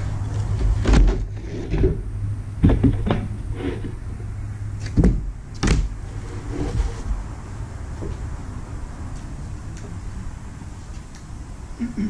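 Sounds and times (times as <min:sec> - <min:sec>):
steady low hum: 0:00.0 - 0:12.0
wood knocking and scraping: 0:00.5 - 0:02.0, 0:02.6 - 0:04.0.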